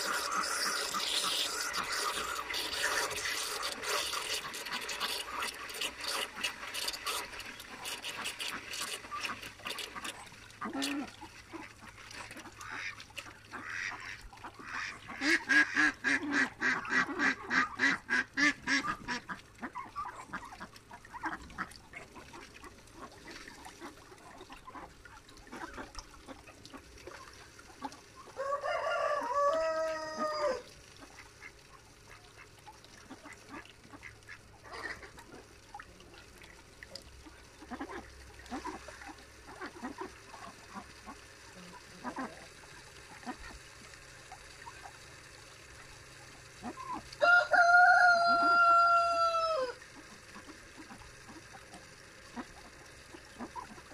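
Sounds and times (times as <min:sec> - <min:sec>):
ducks quacking: 0:00.0 - 0:26.9, 0:28.9 - 0:35.5, 0:37.2 - 0:43.6, 0:48.2 - 0:53.9
rooster crowing: 0:28.4 - 0:30.7, 0:47.2 - 0:49.8.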